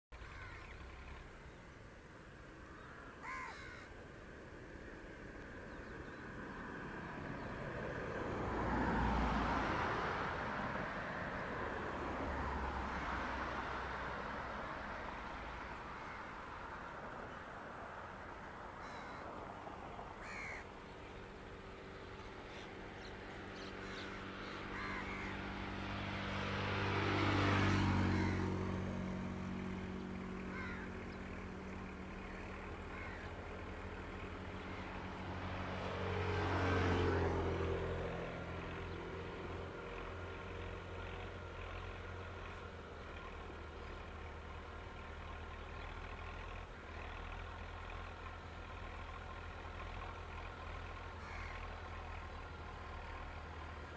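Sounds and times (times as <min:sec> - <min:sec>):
bird calls: 0:00.2 - 0:01.8, 0:02.4 - 0:04.0, 0:18.8 - 0:19.4, 0:20.1 - 0:25.4, 0:30.4 - 0:33.5
vehicle passing: 0:00.2 - 0:53.9
tractor engine running: 0:37.7 - 0:53.9.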